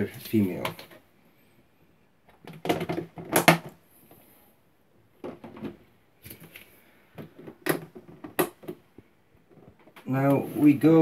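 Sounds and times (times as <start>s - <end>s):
plastic tubs knocking and scraping: 2.2s - 4.2s, 5.0s - 11.0s.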